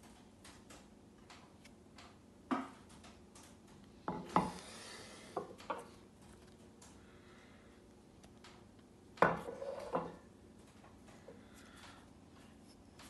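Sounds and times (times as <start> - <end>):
stone scraping on table: 9.4 - 10.1.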